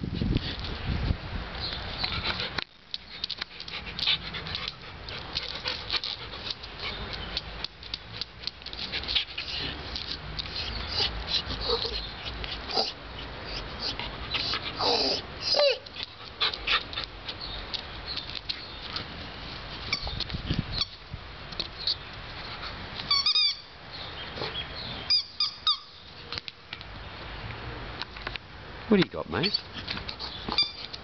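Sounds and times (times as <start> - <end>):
wind rumble on microphone: 0.0 - 2.4, 19.2 - 21.6
squeaky toy ball squeaking: 23.1 - 23.6, 30.5 - 30.9.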